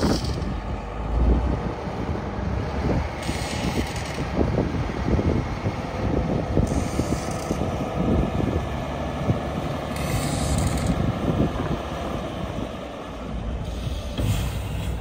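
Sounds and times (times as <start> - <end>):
truck diesel engine running: 0.0 - 15.0
brief air hiss: 13.7 - 15.0.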